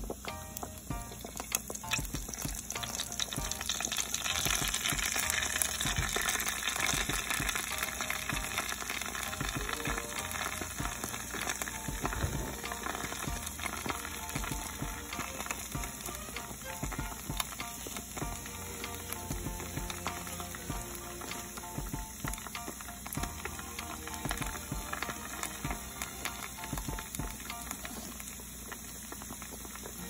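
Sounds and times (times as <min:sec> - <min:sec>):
pastries sizzling in hot oil: 0:00.0 - 0:30.0.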